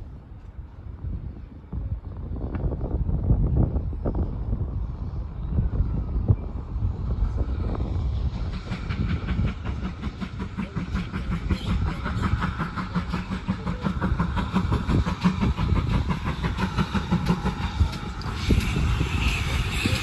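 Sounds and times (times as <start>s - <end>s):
steam locomotive chuffing: 6.6s - 20.0s
wheels clattering on rail: 7.6s - 20.0s.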